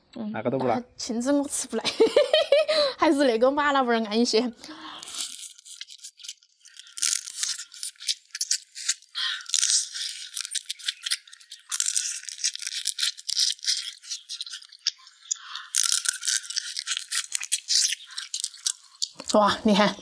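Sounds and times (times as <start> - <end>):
close-miked chewing and gnawing: 4.7 - 20.0.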